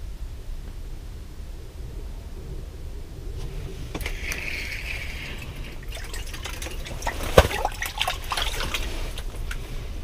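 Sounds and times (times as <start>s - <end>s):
water splashing and dripping: 4.0s - 9.6s.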